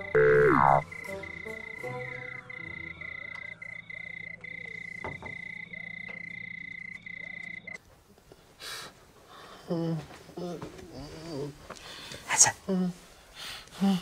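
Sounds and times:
frogs trilling: 0:00.0 - 0:07.8.

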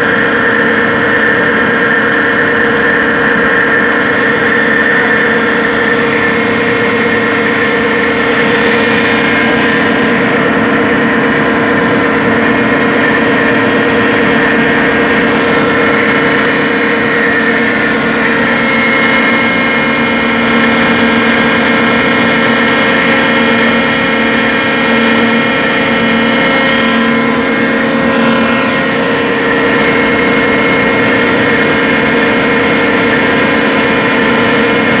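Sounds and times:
drilling rig machine drone: 0:00.0 - 0:35.0.

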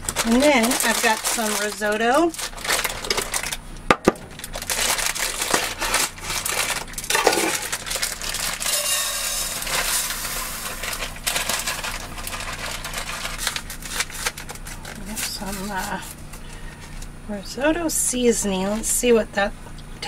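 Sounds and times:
plastic bag crinkling: 0:00.0 - 0:17.1
rice pouring into skillet: 0:07.0 - 0:14.0.

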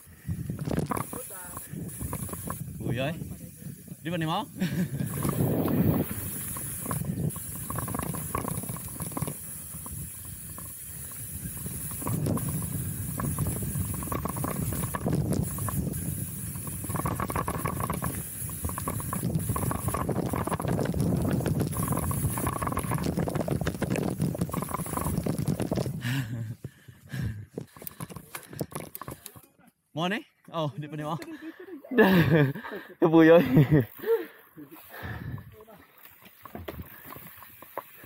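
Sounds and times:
wind on microphone: 0:00.0 - 0:28.9
bike clattering and rattling: 0:00.0 - 0:29.5, 0:35.0 - 0:38.0
bike tyres on dirt: 0:00.0 - 0:29.5, 0:33.5 - 0:38.0.

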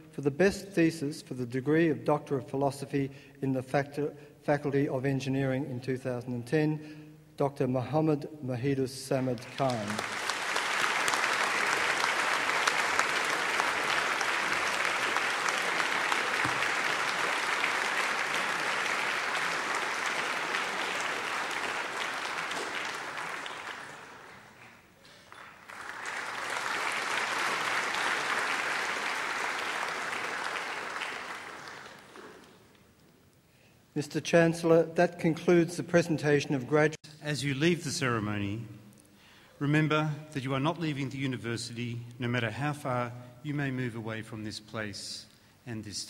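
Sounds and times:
audience applauding: 0:09.3 - 0:32.6.

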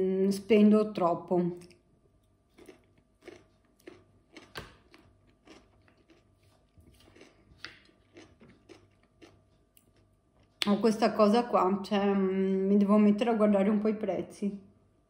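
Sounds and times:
chewing crisp cucumber: 0:01.6 - 0:10.8.

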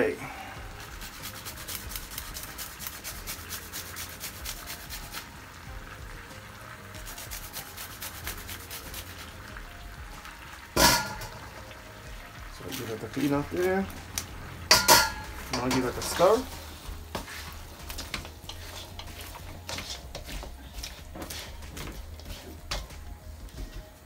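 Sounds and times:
garlic grated on metal grater: 0:01.0 - 0:05.2, 0:07.0 - 0:09.2, 0:18.4 - 0:21.5.

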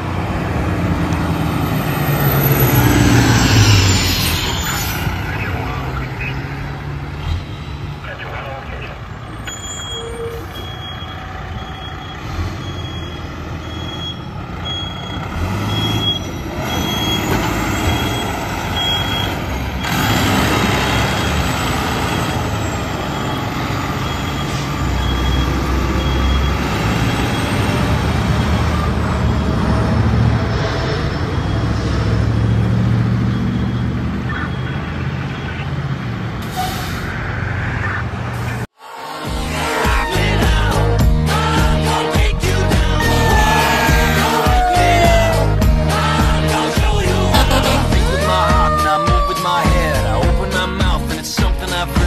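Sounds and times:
diesel fire engines rumbling: 0:00.0 - 0:38.8, 0:39.4 - 0:52.0
backup alarm beeping: 0:09.3 - 0:20.0, 0:22.3 - 0:27.5
air brake hissing: 0:36.4 - 0:37.1.

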